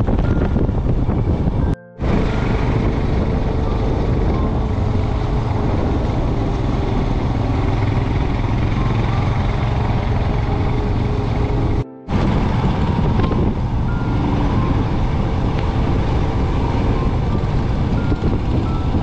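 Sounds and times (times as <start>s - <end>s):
motorcycle engine cruising: 0.0s - 19.0s
road noise rushing: 0.0s - 19.0s.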